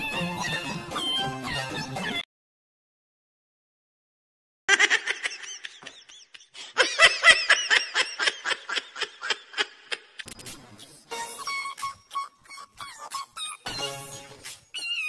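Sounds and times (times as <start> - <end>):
high-pitched giggling laughter: 12.1 - 13.7.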